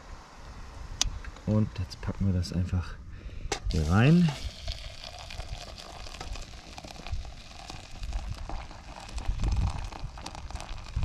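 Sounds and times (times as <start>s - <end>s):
water pouring into a pot: 3.7s - 11.0s
wind rumble on microphone: 7.0s - 11.0s.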